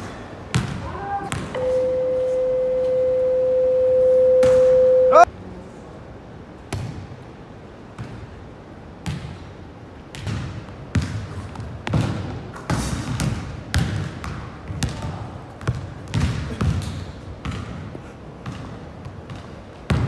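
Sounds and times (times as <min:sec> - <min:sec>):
basketball bouncing on wooden floor: 0:13.1 - 0:17.8.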